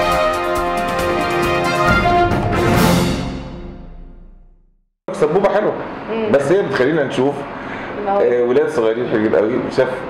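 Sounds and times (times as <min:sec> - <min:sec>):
news intro theme music: 0:00.0 - 0:04.7.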